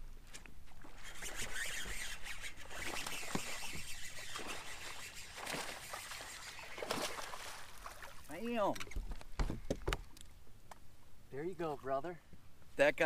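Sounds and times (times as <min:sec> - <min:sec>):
lure splashing across water: 0:00.4 - 0:09.2
fish striking with splash: 0:04.4 - 0:08.1.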